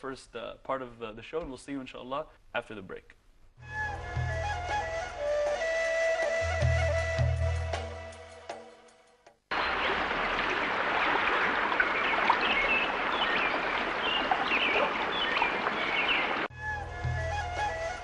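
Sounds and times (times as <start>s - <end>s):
running water: 9.5s - 16.5s
bird chirps: 11.8s - 16.5s.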